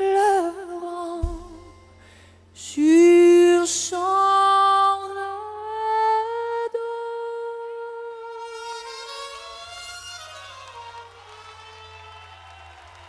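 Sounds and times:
woman singing a cappella: 0.0 - 1.9, 2.6 - 8.9.

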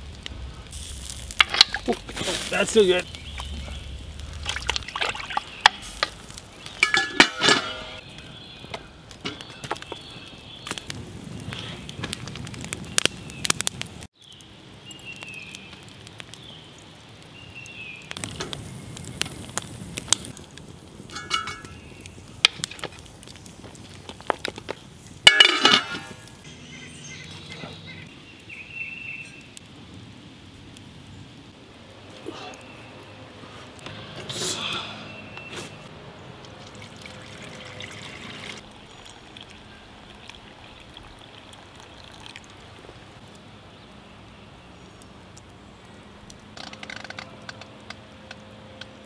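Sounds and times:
metal pot and lid clinking: 5.6 - 8.0, 21.1 - 21.8, 25.3 - 26.2.

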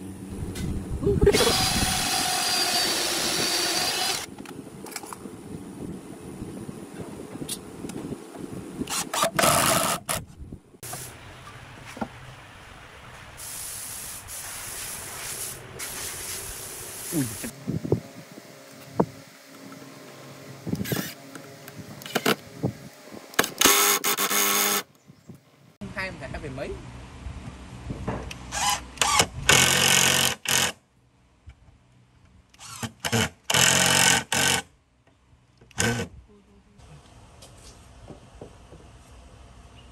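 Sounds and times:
impact driver running screw: 1.3 - 4.3, 8.9 - 10.2, 28.5 - 30.7, 32.6 - 34.6.

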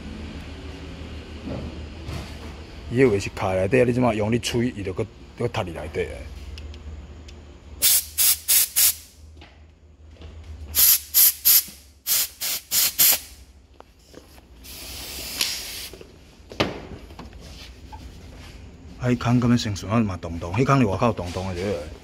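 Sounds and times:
soft air hiss: 7.8 - 9.2, 10.8 - 13.4, 14.6 - 16.0
air blow gun blasts: 10.8 - 13.4.

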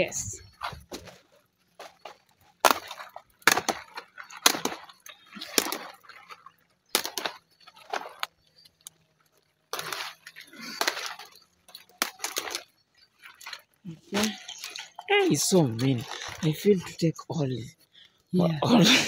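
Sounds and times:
leaves rustling: 0.0 - 17.1
kale stalks snapping: 1.8 - 15.0.

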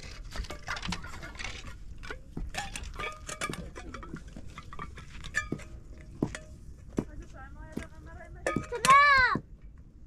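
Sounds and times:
metal dishes and utensils clinking: 0.0 - 6.6.

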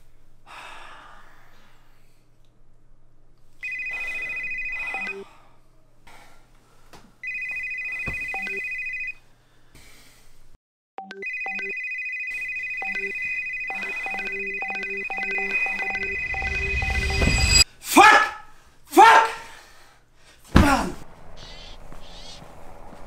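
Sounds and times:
warbling phone ringtone: 3.6 - 5.2, 7.2 - 9.2, 11.0 - 17.6
musical notes: 13.8 - 17.6.

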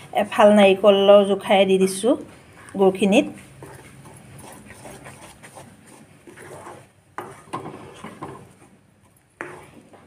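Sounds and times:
spatula stirring sticky syrup: 2.8 - 10.0
spatula scraping and knocking pan: 3.6 - 8.8, 9.4 - 10.0.

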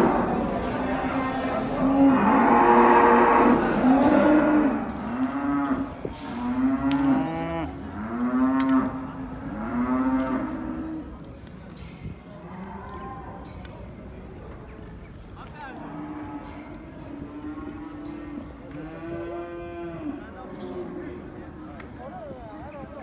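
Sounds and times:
cattle mooing: 1.8 - 10.9.

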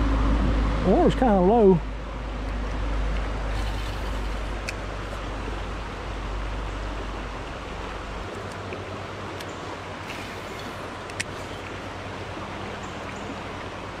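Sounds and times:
low rumble: 0.0 - 8.3
creek water rushing: 0.0 - 14.0
faint clicks: 8.3 - 11.8.

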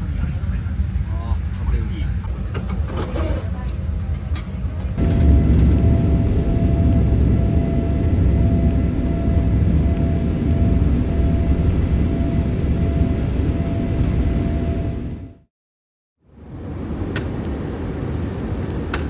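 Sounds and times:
low rumble of jet engines: 0.0 - 15.5, 16.2 - 19.0.

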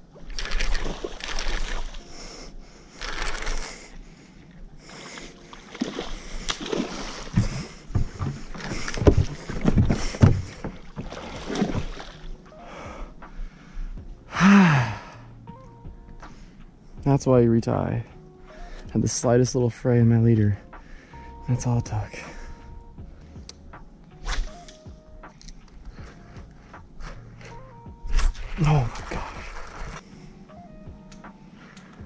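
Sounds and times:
fish splashing in water: 0.2 - 2.0, 5.5 - 12.4
man gasping and grunting: 14.3 - 15.3.

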